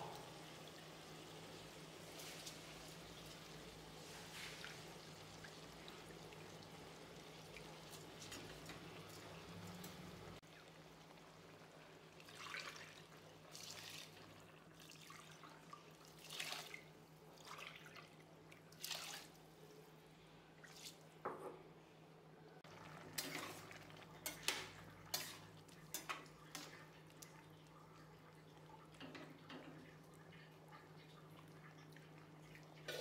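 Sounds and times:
water splashing into pot: 22.7 - 27.4.

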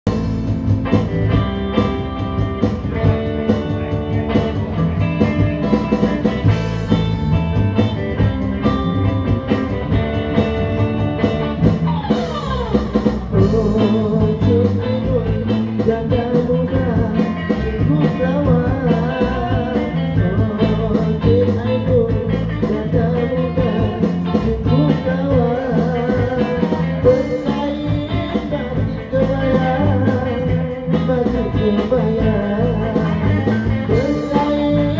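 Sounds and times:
band playing pop song: 0.0 - 34.9
person singing: 11.7 - 34.9.

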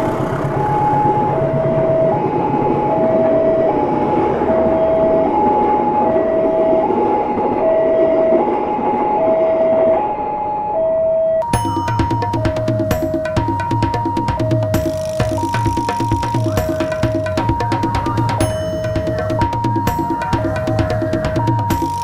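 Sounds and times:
train carriages rolling past: 0.0 - 10.2
two-tone crossing alarm chime: 7.6 - 22.0.

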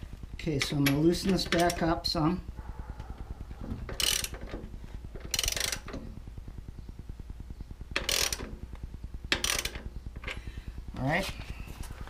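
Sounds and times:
socket ratchet clicking: 3.8 - 4.6, 5.2 - 6.0, 8.0 - 8.6, 9.3 - 10.4.

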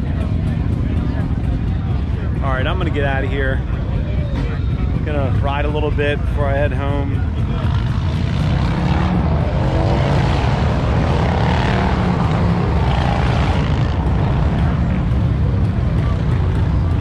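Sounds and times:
motorcycle engines rumbling: 0.0 - 17.0.

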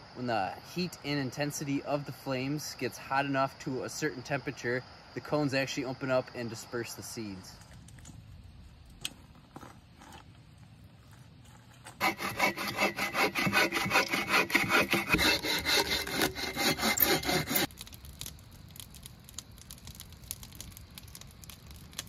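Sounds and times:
hand saw cutting a log: 12.0 - 17.7.

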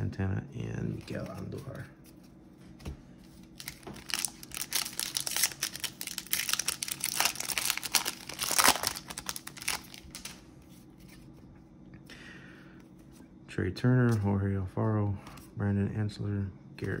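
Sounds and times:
foil wrapper crinkling and tearing: 3.5 - 10.4.

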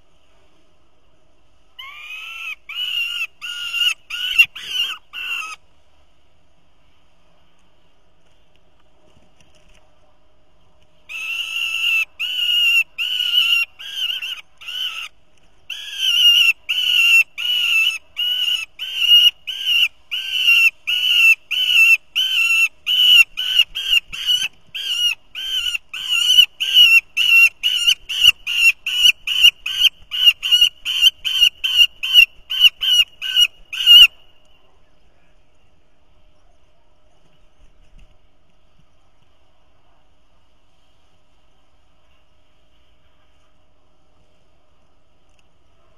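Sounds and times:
young falcon calling harshly: 1.8 - 5.6, 11.1 - 34.2.

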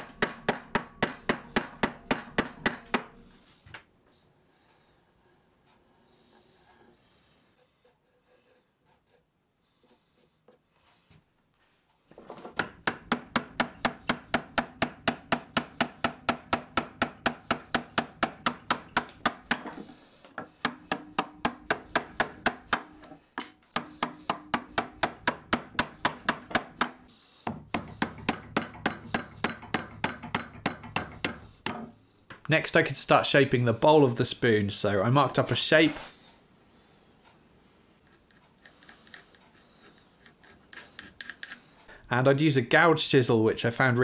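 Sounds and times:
mallet striking chisel: 0.0 - 3.2, 12.6 - 19.8, 20.4 - 31.9.

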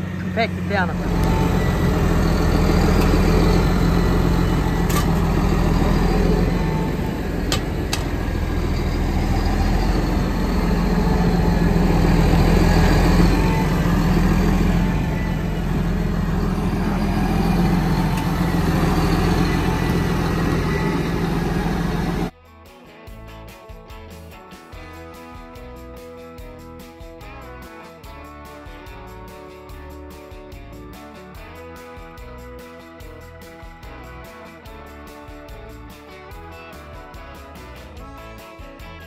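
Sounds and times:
tractor diesel engine running: 0.0 - 22.3.

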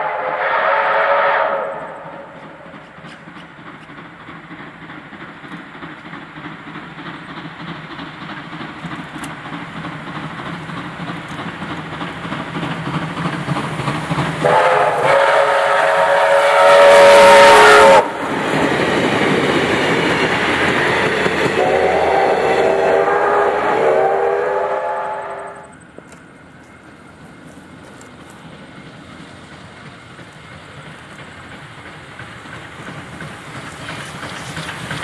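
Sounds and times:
steam whistle blasts: 0.0 - 2.6, 14.4 - 18.2, 21.6 - 25.7
steam locomotive running: 0.0 - 35.0.

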